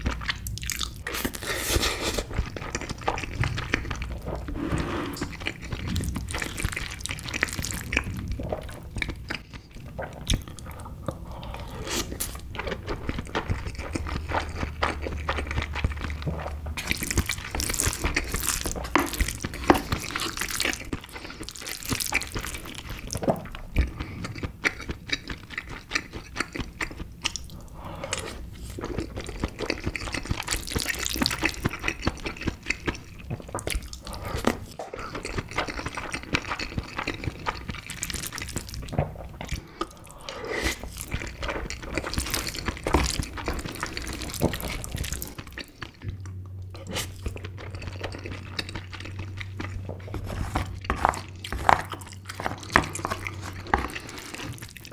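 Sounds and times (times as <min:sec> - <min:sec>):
wet chewing: 0:00.0 - 0:54.9
wooden spoon stirring wet mixture: 0:46.9 - 0:54.9.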